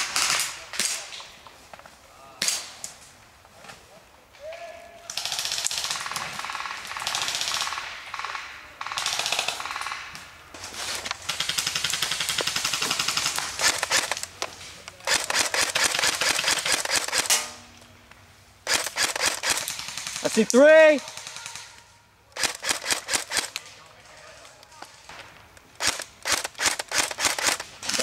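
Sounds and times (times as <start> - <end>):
airsoft rifle automatic fire: 5.2 - 10.0, 11.2 - 14.3, 15.0 - 17.4, 18.6 - 20.4, 22.4 - 23.6, 25.8 - 28.0.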